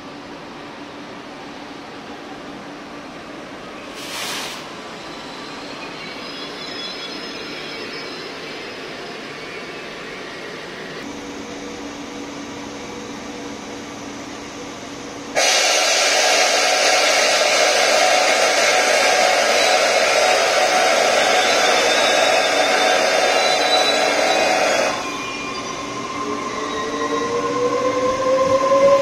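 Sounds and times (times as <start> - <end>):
rushing hiss of air: 3.8 - 4.9, 15.4 - 25.2.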